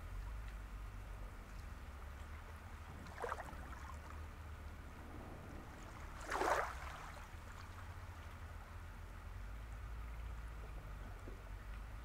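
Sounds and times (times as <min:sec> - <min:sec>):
low rumble: 0:00.0 - 0:12.0
small waves lapping: 0:01.4 - 0:09.3
water splashes: 0:01.5 - 0:08.8.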